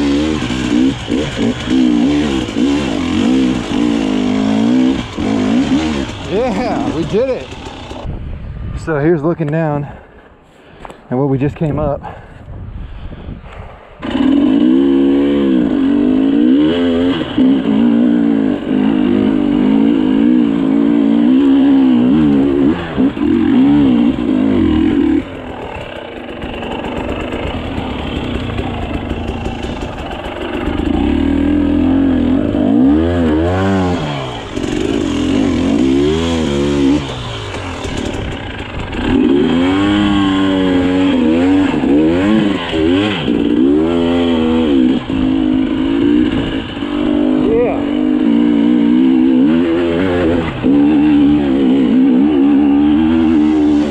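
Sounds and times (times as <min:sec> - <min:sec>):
dirt bike engine revving: 0:00.0 - 0:08.2, 0:14.0 - 0:53.9.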